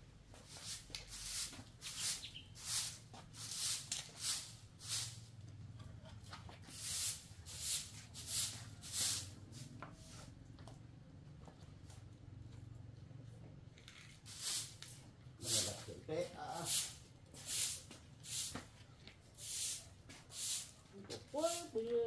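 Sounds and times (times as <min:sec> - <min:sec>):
broom sweeping concrete floor: 0:00.3 - 0:05.5, 0:06.1 - 0:10.4, 0:13.9 - 0:22.0.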